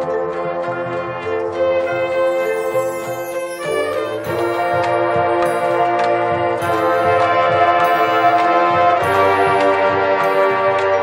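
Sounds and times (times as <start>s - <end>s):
brass chords: 0.0s - 11.0s
drum hits: 4.2s - 11.0s.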